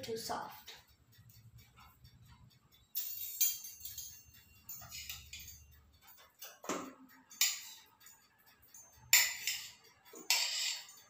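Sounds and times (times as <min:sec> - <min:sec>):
knife scraping metal bowl: 0:03.4 - 0:05.6, 0:09.1 - 0:11.0.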